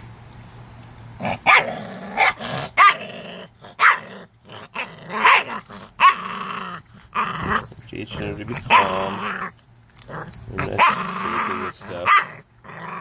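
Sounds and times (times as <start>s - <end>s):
puppy growling and snarling: 1.1s - 13.0s.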